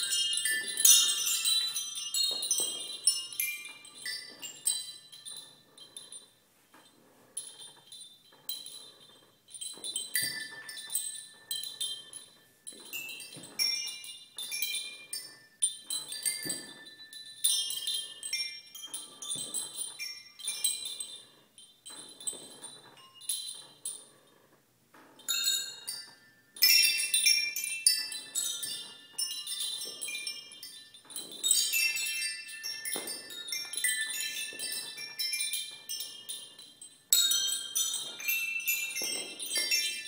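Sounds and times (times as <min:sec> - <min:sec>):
metal rods clinking like chimes: 0:00.0 - 0:40.0.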